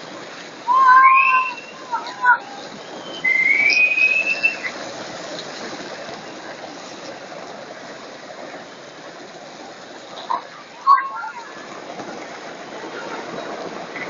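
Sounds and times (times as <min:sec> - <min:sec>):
skateboard wheels rumbling on asphalt: 0:00.0 - 0:14.0
high squeal: 0:00.7 - 0:04.8.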